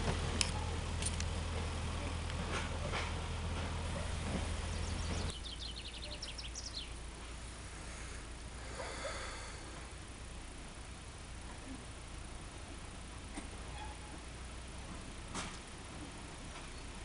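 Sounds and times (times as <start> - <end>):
diesel locomotive engine hum: 0.0 - 17.0
bird chirping: 4.5 - 7.0.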